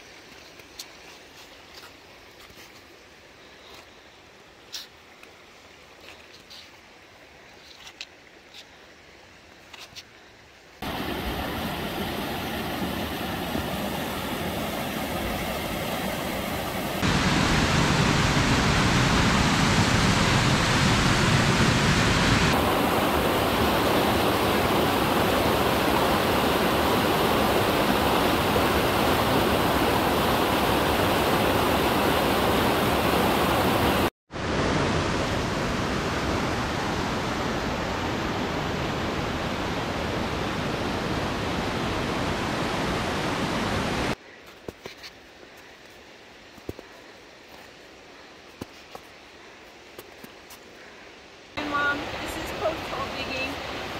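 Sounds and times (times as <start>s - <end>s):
creek rushing over rocks: 10.8s - 44.2s, 51.5s - 53.9s
footsteps crunching on snow: 44.4s - 50.7s.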